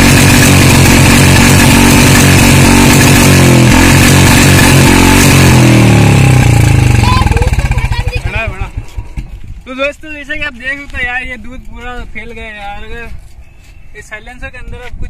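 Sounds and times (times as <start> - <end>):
motorcycle engine revving: 0.0 - 9.7.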